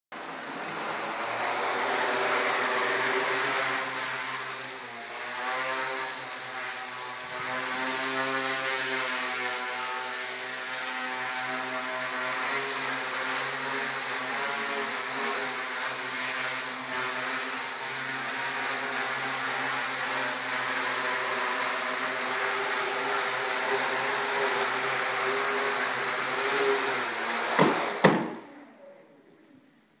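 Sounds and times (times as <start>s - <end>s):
quadcopter motors whirring: 0.2s - 28.2s
loud knock: 27.6s - 28.4s.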